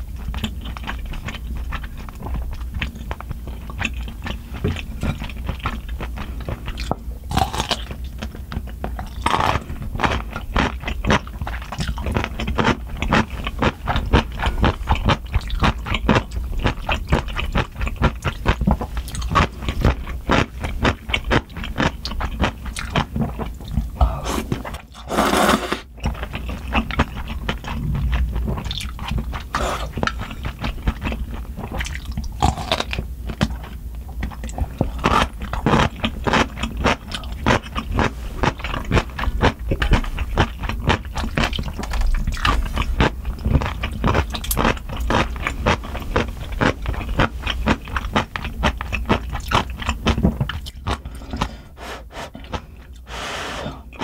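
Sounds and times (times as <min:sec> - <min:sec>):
wet chewing: 0:00.2 - 0:54.0
noodle slurp: 0:24.0 - 0:27.8, 0:51.2 - 0:54.0.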